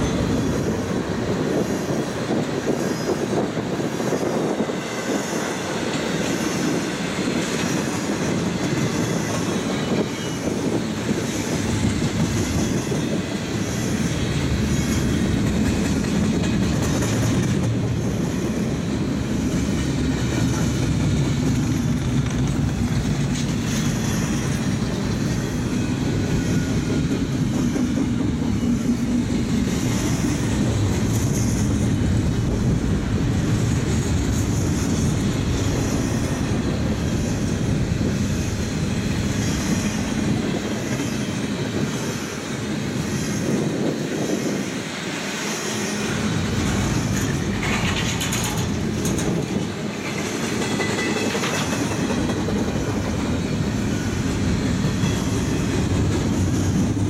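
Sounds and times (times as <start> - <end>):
clickety-clack of rail joints: 0.0 - 57.0
rumble of train wheels on rail: 0.0 - 57.0.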